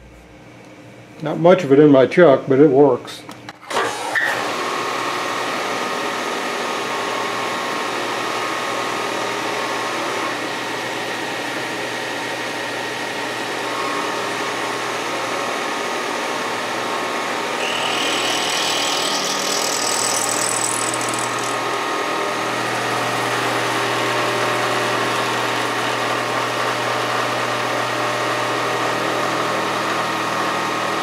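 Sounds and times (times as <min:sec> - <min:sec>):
milling machine whine: 0:03.8 - 0:31.0
burr grinding steel: 0:17.5 - 0:23.6.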